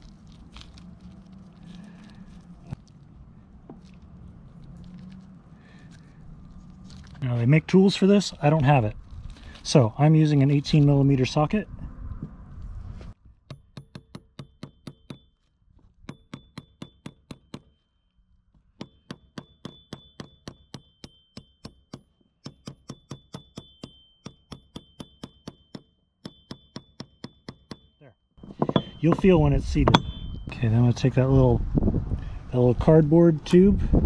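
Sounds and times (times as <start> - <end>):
hammer tapping metal socket: 28.6 - 30.5.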